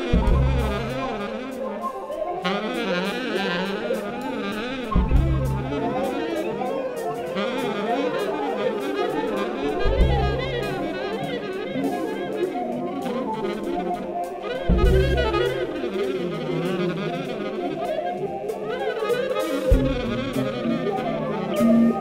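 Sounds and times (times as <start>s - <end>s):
heavy low accents: 0.0s - 2.4s, 4.4s - 6.4s, 9.3s - 11.4s, 12.6s - 17.8s, 19.7s - 22.0s
jazz band playing: 0.0s - 22.0s.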